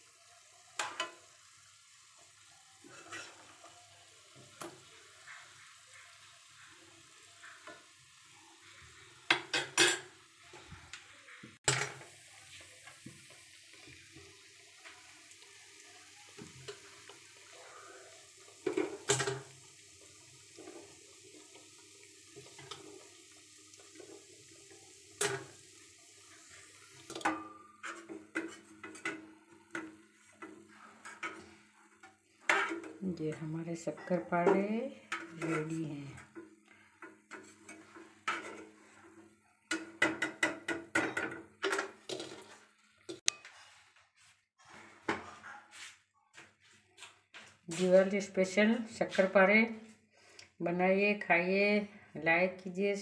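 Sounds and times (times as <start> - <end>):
faint steady hiss: 0.0 - 42.0
metal spoon clinking on cookware: 39.7 - 42.4.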